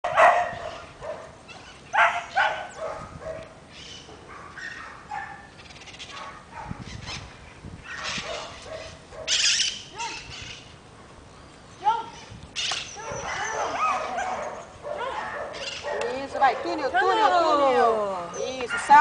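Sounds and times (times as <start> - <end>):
dog barking and yipping: 0.0 - 1.3, 1.9 - 3.5, 4.3 - 5.5, 6.1 - 6.9, 7.8 - 9.7, 12.9 - 16.9.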